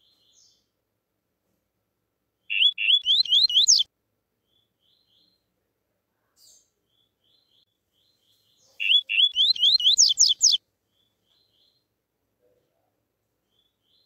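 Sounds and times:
bird singing rising whistled notes: 2.5 - 3.9, 8.8 - 10.6
faint short bird chirps: 2.5 - 3.9, 6.4 - 11.8.

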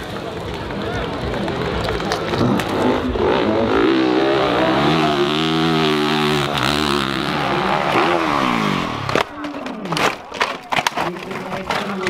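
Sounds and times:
dirt bike engine revving: 2.2 - 9.5.

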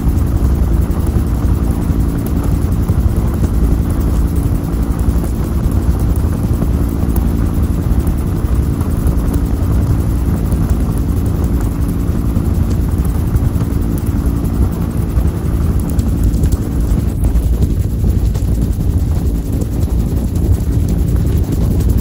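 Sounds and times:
helicopter engine and rotor drone: 0.0 - 22.0.

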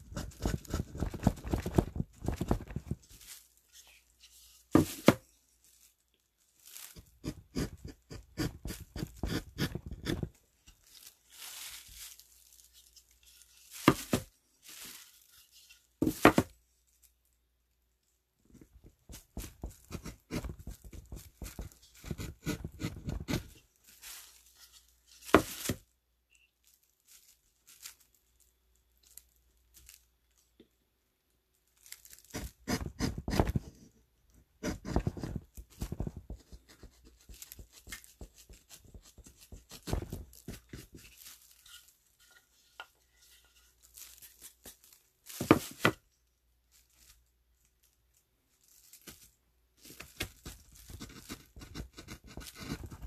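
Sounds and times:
gouge scraping wood: 7.2 - 10.3, 21.4 - 23.6.

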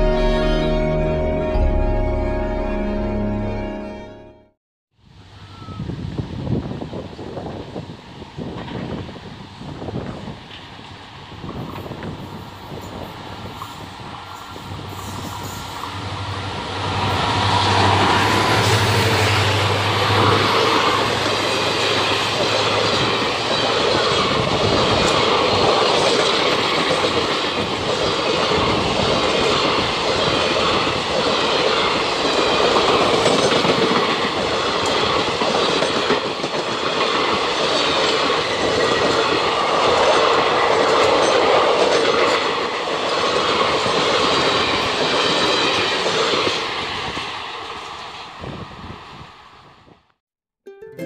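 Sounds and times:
train wheels running on rails: 6.6 - 49.6.

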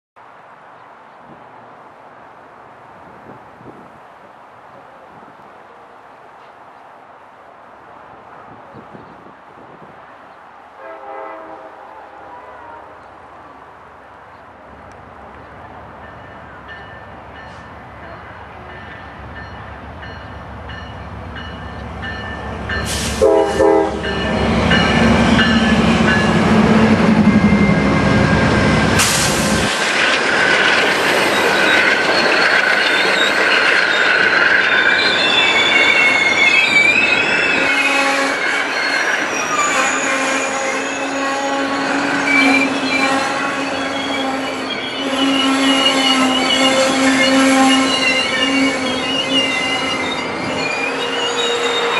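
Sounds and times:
train horn: 10.8 - 13.2, 22.8 - 28.0, 37.5 - 38.5, 39.6 - 50.0
diesel locomotive engine rumble: 11.0 - 51.9
train wheels squealing: 16.0 - 51.9.

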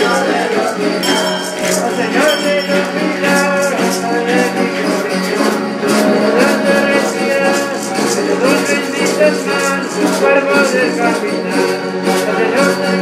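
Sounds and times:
gourd rattle shaking: 0.0 - 4.1
group singing: 0.0 - 13.0
strummed stringed instruments: 0.0 - 13.0.

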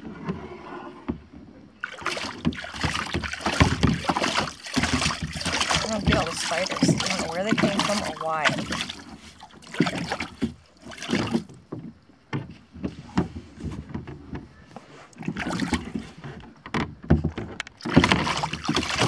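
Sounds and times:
paddle strokes splashing water: 1.7 - 16.6, 17.3 - 19.0
water dripping: 1.8 - 11.4.

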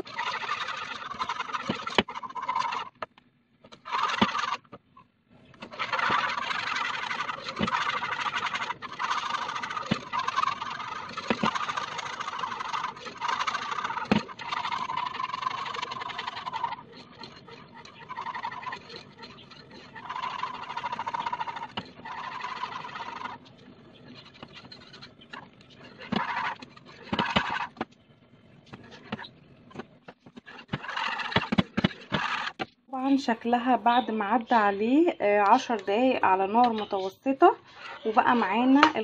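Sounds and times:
whisk scraping in metal pot: 5.6 - 27.8, 36.6 - 39.0.

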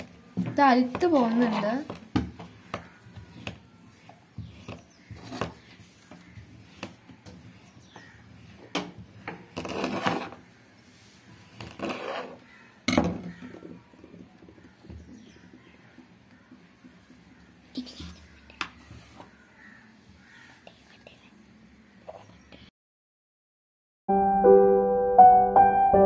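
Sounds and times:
knife scraping through sand: 9.6 - 10.4, 11.7 - 12.4.

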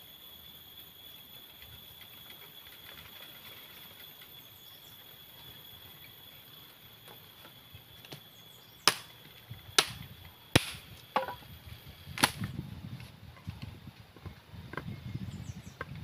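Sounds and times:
machete chopping wooden pole: 8.9 - 9.1, 9.8 - 10.0, 10.6 - 11.3, 12.2 - 12.4.

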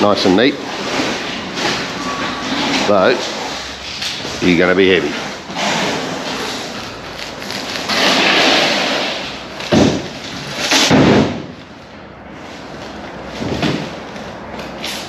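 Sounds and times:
metal parts scraping: 0.6 - 9.6
heavy parts thudding: 7.8 - 12.0, 13.2 - 14.2.

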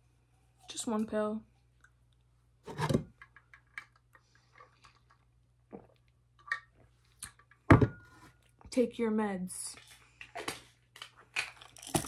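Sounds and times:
pill bottle handling: 11.0 - 12.0.

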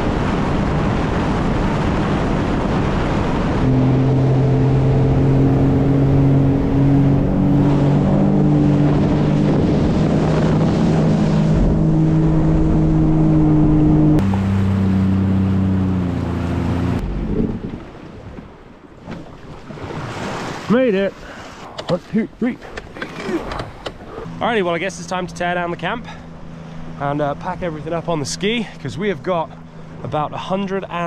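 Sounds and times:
jet ski engine drone: 0.0 - 18.1, 22.8 - 31.0
rush of wind and spray: 0.0 - 18.6.

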